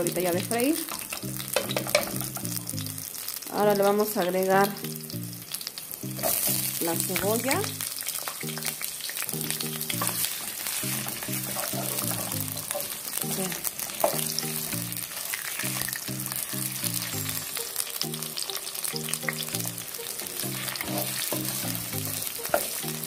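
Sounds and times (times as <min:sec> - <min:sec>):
onion sizzling in hot oil: 0:00.0 - 0:23.0
simple background melody: 0:00.0 - 0:23.0.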